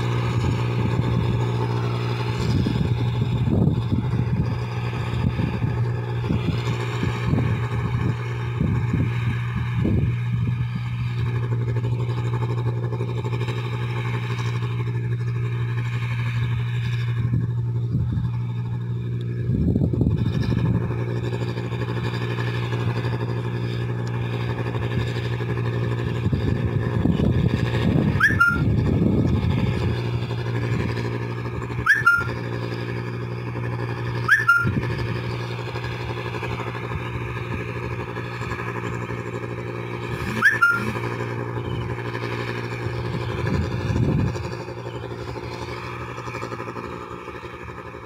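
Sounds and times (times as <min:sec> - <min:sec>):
harvester engine droning: 0:00.0 - 0:48.0
rising squeaks with clicks: 0:28.2 - 0:28.7, 0:31.8 - 0:32.4, 0:34.2 - 0:34.8, 0:40.4 - 0:41.0.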